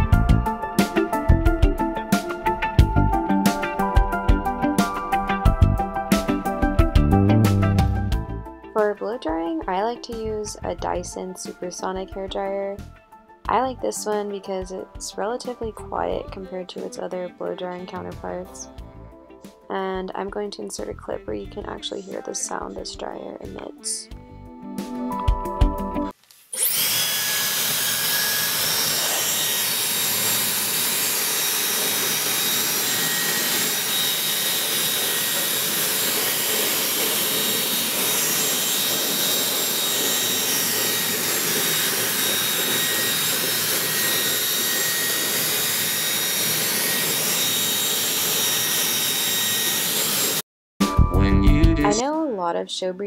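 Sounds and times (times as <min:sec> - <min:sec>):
hair dryer blowing air: 0:26.6 - 0:50.4.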